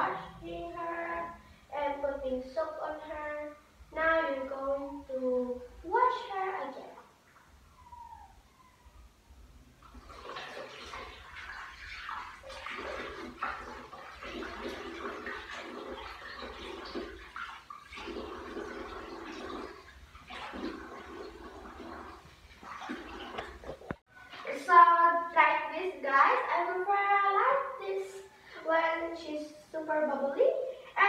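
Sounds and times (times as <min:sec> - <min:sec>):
water splashing: 0:09.8 - 0:24.7.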